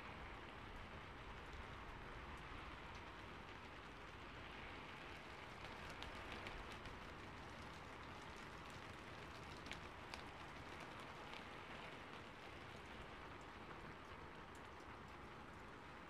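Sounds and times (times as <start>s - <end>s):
light ticks: 8.6s - 11.9s.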